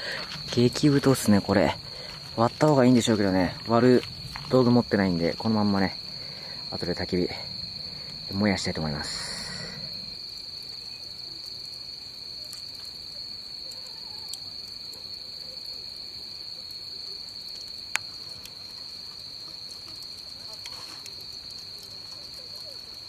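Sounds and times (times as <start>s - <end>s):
crickets chirping: 0.0s - 23.0s
faint ticks: 9.4s - 13.0s, 13.6s - 15.8s, 17.4s - 23.0s.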